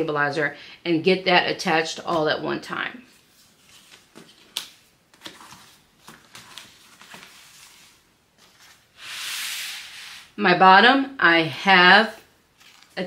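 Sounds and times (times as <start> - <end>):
faint rustling of material: 2.1 - 10.4.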